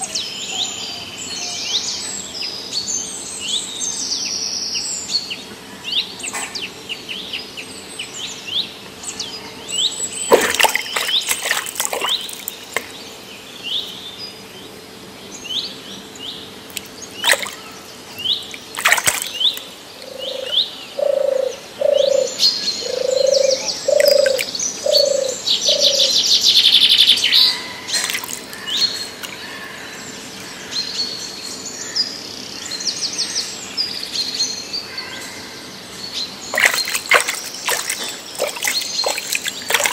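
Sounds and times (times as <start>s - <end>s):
birds chirping: 9.1s - 39.9s.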